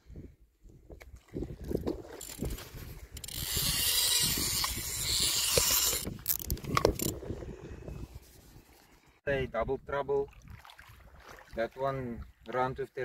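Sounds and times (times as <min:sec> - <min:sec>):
fishing reel drag buzzing: 0:02.2 - 0:07.2.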